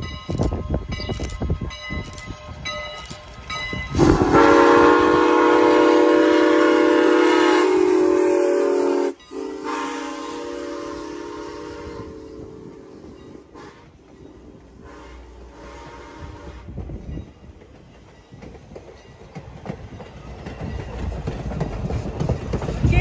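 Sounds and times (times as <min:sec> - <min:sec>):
train horn blasts: 0:03.9 - 0:14.0, 0:14.7 - 0:16.8.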